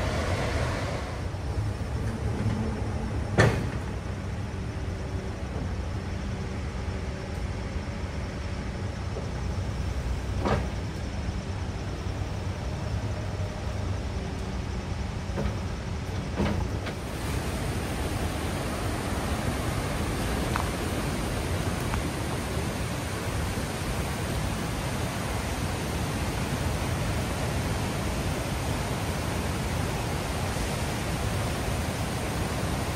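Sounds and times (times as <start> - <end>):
diesel engine rumbling: 0.0 - 32.9.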